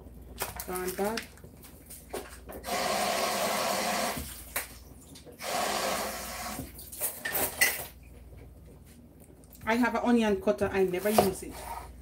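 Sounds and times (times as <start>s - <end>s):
kitchen tap running: 2.5s - 7.7s.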